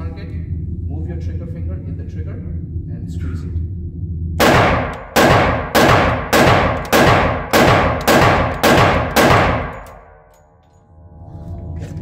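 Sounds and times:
pistol shots with reverberation: 4.4 - 10.3.

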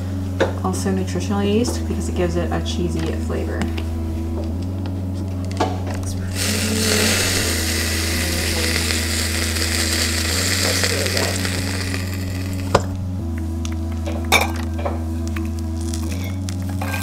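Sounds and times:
low background music: 0.0 - 17.0
oil sizzling in a pot: 6.4 - 12.9.

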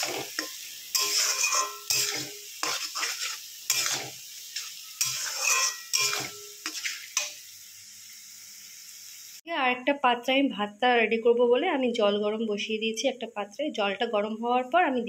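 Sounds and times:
metal spatula scraping a pan: 0.0 - 7.4
onions sizzling in oil: 0.0 - 9.4.

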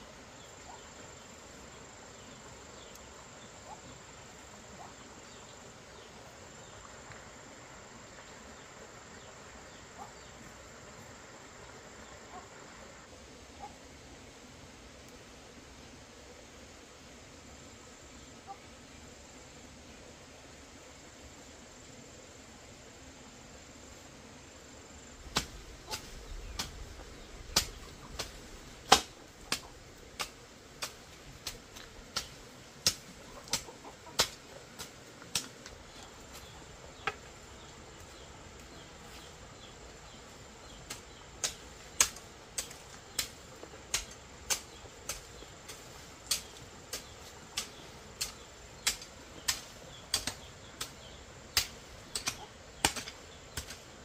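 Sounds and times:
hoe chopping into soil: 25.3 - 35.5, 40.9 - 53.9.

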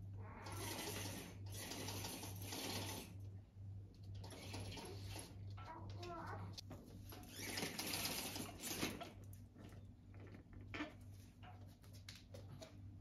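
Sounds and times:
blind mechanism whirring: 0.2 - 9.4.

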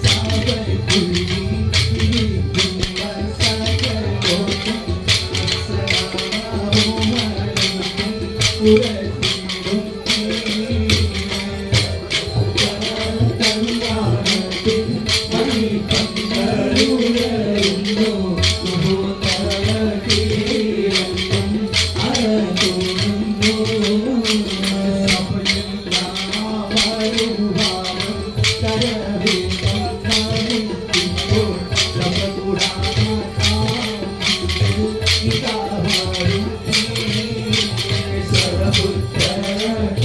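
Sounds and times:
group singing in unison: 10.3 - 40.0.

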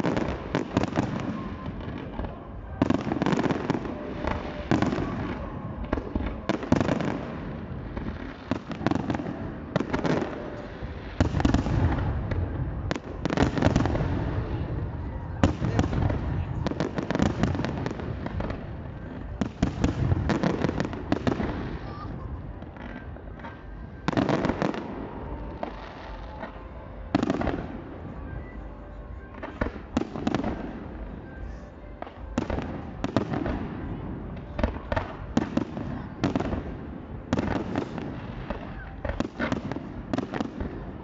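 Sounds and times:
fireworks crackling: 0.0 - 28.0.

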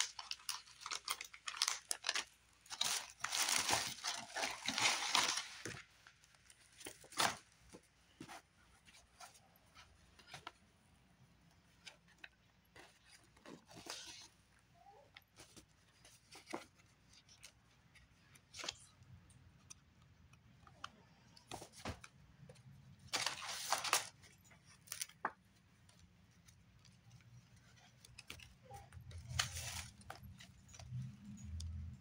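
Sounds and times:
wrapping crinkling: 0.0 - 7.7, 23.0 - 31.6.

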